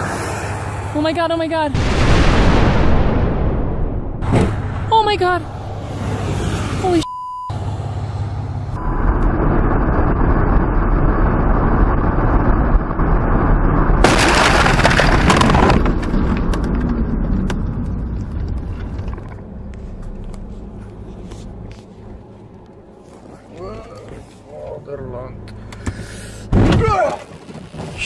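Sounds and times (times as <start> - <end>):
car cabin road noise: 4.2 - 14.0, 14.9 - 28.0
windshield crashing and cracking: 14.0 - 17.0, 26.5 - 28.0.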